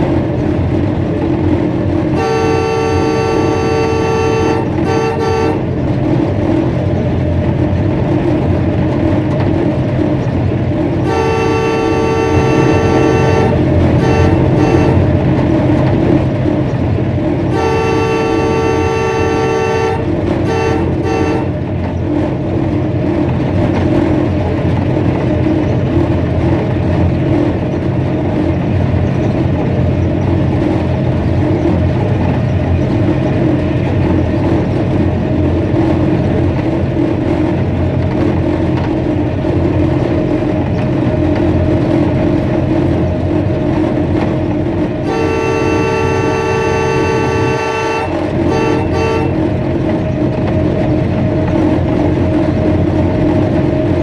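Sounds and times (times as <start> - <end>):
locomotive engine rumble: 0.0 - 54.0
wheels on rail: 0.0 - 54.0
locomotive air horn blasts: 2.1 - 5.7, 11.0 - 15.2, 17.5 - 21.6, 45.0 - 49.5.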